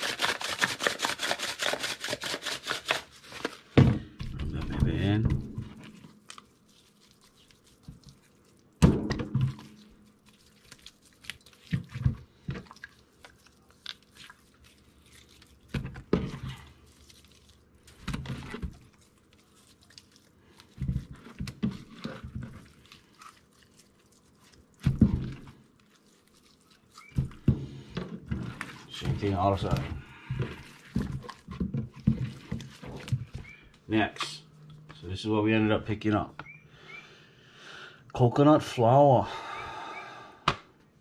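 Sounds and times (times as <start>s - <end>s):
hands rubbing salt into fish: 0.0s - 3.6s, 5.8s - 8.8s, 9.6s - 12.0s, 12.6s - 27.4s.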